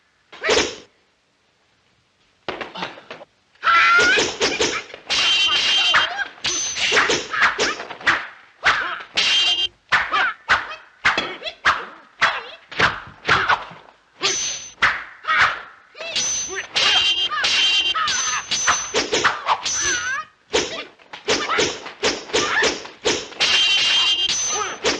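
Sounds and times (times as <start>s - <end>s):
fighters shouting and grunting: 2.7s - 24.9s
staff and spear swishes: 4.1s - 8.4s.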